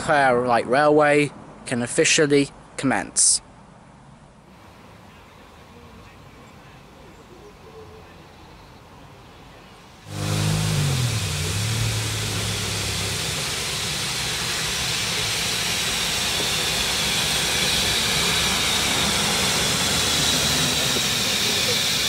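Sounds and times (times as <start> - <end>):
steam locomotive hissing: 4.6 - 22.0
low humming tones bending in pitch: 10.0 - 22.0.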